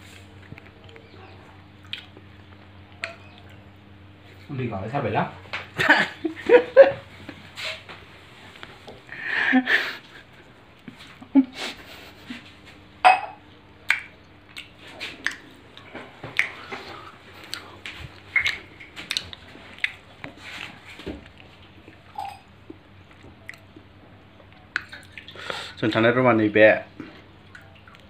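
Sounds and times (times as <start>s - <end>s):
person chewing food: 0.0s - 3.8s, 13.5s - 25.7s, 27.0s - 28.0s
faint steady hum: 0.0s - 28.0s.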